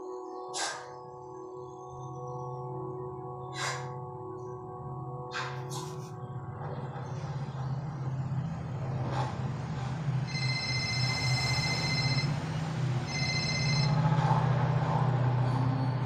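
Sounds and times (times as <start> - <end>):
low drone: 0.0 - 16.0
high electronic ringing tone: 10.2 - 14.2.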